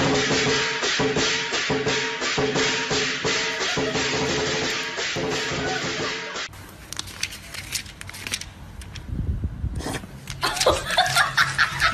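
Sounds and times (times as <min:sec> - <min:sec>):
background music with light percussion: 0:00.0 - 0:06.5.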